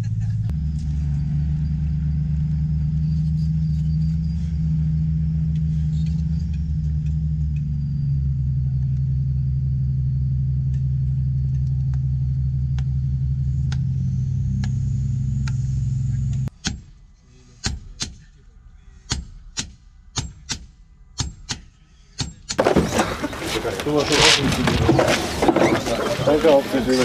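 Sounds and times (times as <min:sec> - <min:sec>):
heavy vehicle engine rumbling: 0:00.0 - 0:16.5, 0:22.6 - 0:27.0.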